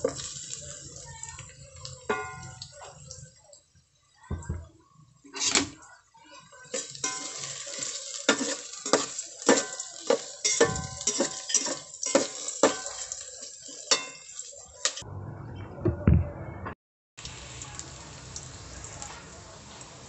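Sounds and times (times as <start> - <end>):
frying sizzle: 0.0 - 15.0, 17.2 - 20.0
utensil clanking against metal pot: 6.7 - 15.0.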